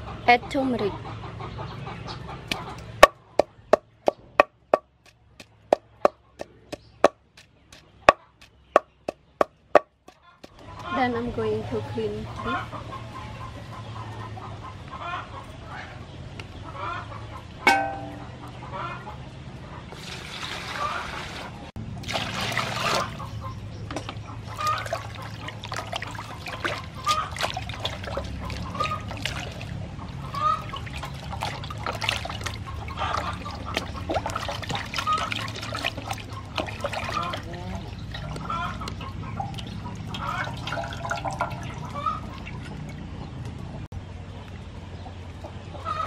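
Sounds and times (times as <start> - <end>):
metal dish clanking: 17.7 - 18.3
water pouring: 19.9 - 23.2, 24.5 - 38.4, 39.4 - 43.1
water sloshing and splashing: 19.9 - 43.9.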